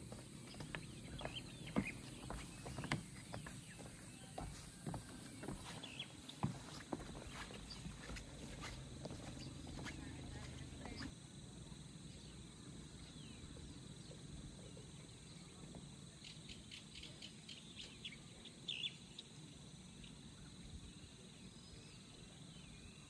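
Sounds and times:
insects trilling: 0.0s - 11.1s
bird chirps: 0.4s - 11.1s.

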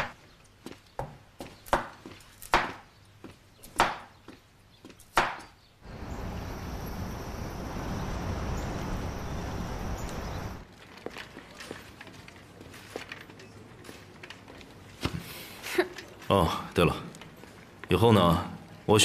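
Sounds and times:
cleaver chopping on wooden board: 1.0s - 2.8s, 3.7s - 4.1s, 5.1s - 5.5s
rushing outdoor ambience: 5.8s - 10.6s.

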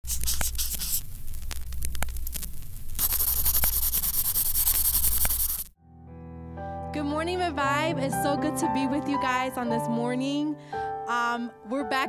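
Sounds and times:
marker scribbling: 0.0s - 1.0s, 3.0s - 5.7s.

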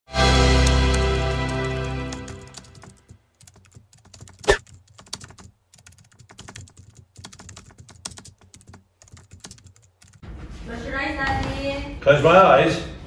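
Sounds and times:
music: 0.1s - 2.9s.

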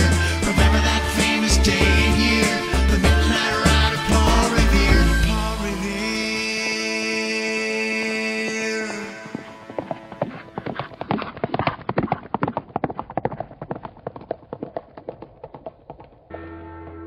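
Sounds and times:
horse hooves galloping: 8.4s - 16.3s.

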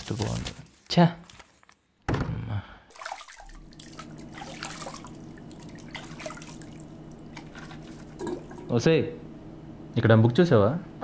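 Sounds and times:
steady hum: 2.3s - 11.0s
tap water running into sink: 3.4s - 8.7s.

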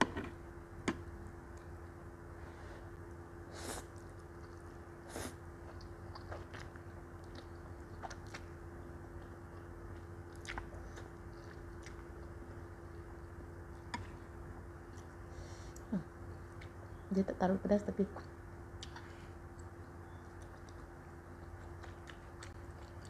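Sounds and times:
steady low hum: 0.0s - 23.0s
wet chewing clicks: 5.7s - 14.1s, 18.2s - 23.0s.

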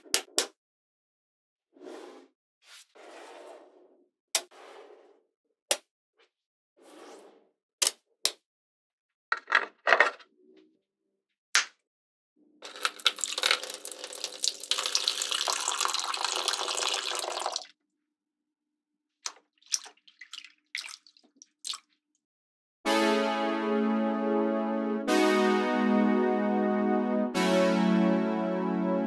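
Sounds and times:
water pouring into plastic pool: 12.6s - 17.7s, 19.6s - 21.9s
light water splashes: 19.2s - 22.0s.

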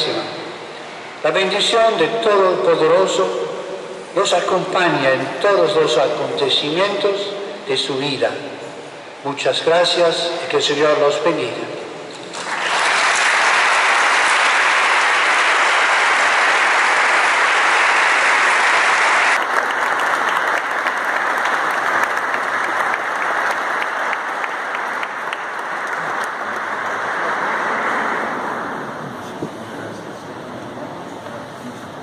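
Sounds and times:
congregation applauding: 12.3s - 29.4s.

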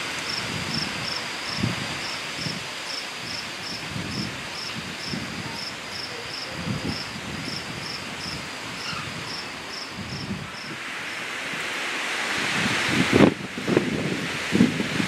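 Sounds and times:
rain hissing: 0.0s - 15.0s
cricket chirping: 0.2s - 10.8s.

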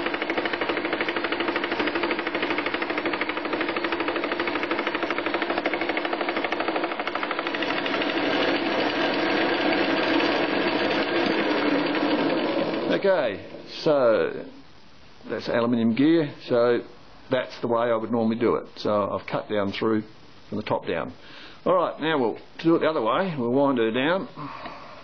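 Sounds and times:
fly cutter rattling on metal: 0.0s - 13.0s.

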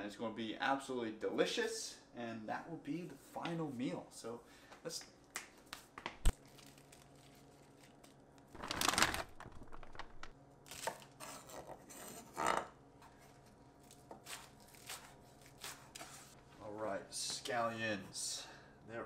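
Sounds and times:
broccolini rustling: 6.3s - 11.5s.

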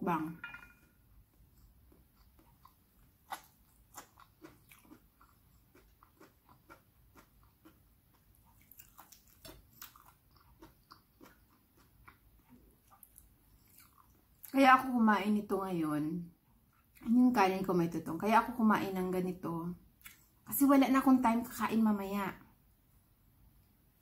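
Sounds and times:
chewing and mouth clicks: 1.3s - 14.6s, 20.0s - 20.4s.

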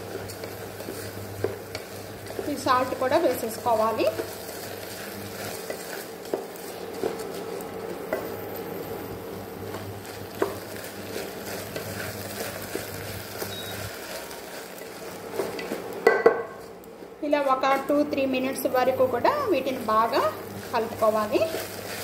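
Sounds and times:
spatula scraping and knocking pot: 0.0s - 8.4s, 9.7s - 18.4s
rice frying sizzle: 0.0s - 22.0s.

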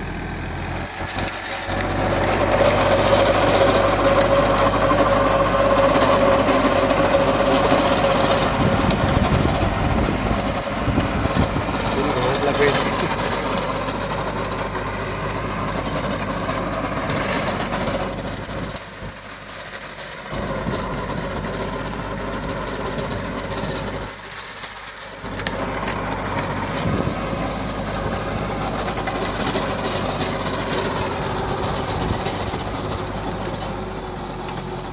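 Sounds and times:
tractor engine running under load: 0.0s - 34.9s
rotavator churning soil: 0.7s - 34.9s.

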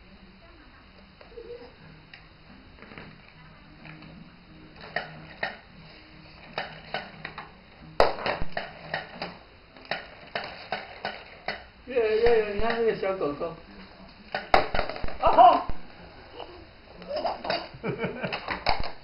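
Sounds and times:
plastic toys knocking on wooden floor: 8.0s - 12.9s, 14.3s - 15.7s, 18.3s - 19.0s.

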